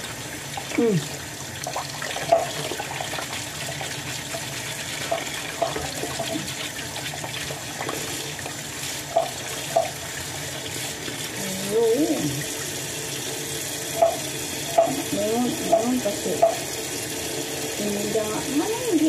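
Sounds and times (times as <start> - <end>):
water running into a sink: 0.0 - 19.0
brush scrubbing crabs: 2.1 - 12.3.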